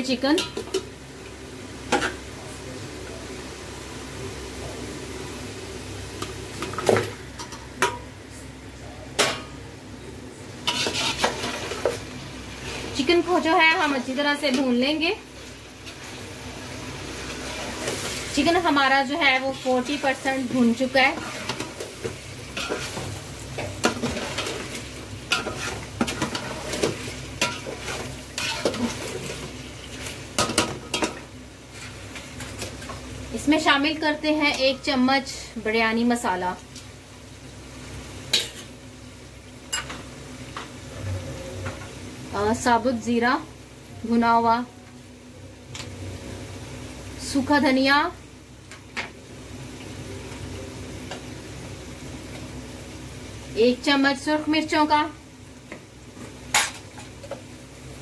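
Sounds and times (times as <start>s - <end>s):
chicken sizzling in oil: 0.0s - 58.0s
stirring clanks and scrapes: 10.6s - 12.0s, 21.0s - 33.0s.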